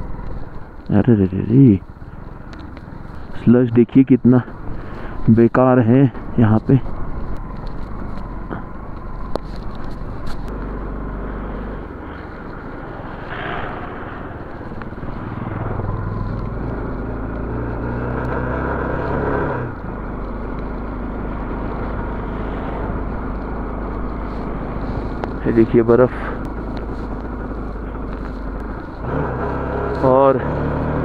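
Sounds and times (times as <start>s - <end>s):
motorcycle engine pulling uphill: 6.5s - 31.0s.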